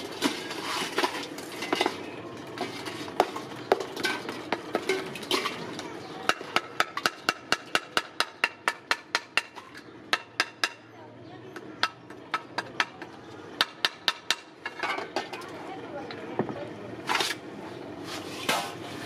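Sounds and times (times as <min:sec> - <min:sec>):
metal tool knocking aluminium: 0:06.2 - 0:10.9.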